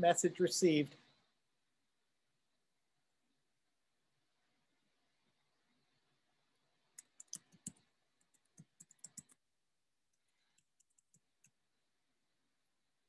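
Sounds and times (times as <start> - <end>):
typing on computer keyboard: 7.0 - 9.4, 10.4 - 11.6.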